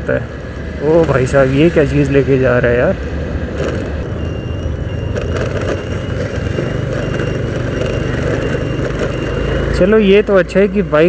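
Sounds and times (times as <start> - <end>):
wind and road noise: 0.0 - 11.0
scooter engine running: 3.1 - 11.0.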